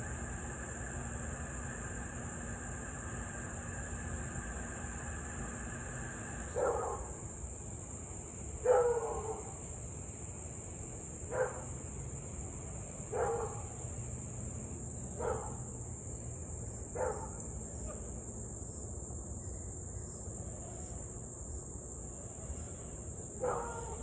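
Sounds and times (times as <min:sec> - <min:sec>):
dog barking: 0:06.6 - 0:07.1, 0:08.6 - 0:09.5, 0:11.3 - 0:11.7, 0:13.1 - 0:13.7, 0:15.2 - 0:15.6, 0:17.0 - 0:18.1, 0:23.4 - 0:24.0.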